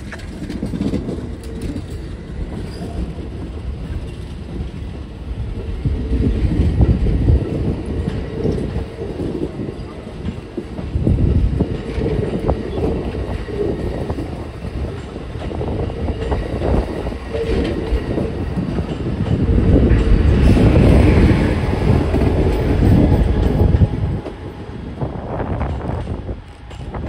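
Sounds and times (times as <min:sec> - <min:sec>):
locomotive passing: 0:00.0 - 0:27.0
train wheels rumbling on rails: 0:00.0 - 0:27.0.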